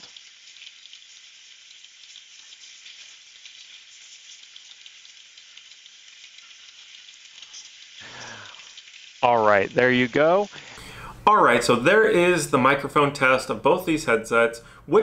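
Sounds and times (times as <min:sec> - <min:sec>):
people talking: 0:09.2 - 0:10.5, 0:11.1 - 0:15.0
faint microphone hiss: 0:09.2 - 0:15.0.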